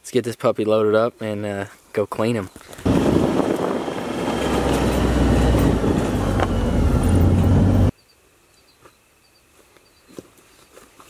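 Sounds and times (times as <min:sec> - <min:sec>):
utility vehicle engine hum: 0:02.8 - 0:07.9
vehicle rattling and jolting: 0:02.8 - 0:07.9.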